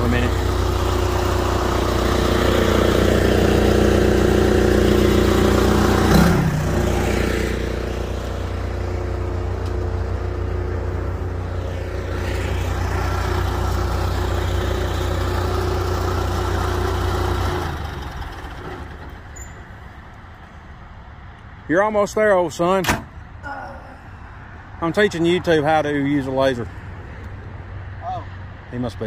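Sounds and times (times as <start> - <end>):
engine shutting off: 0.0 - 19.6
diesel engine idling: 0.0 - 21.1.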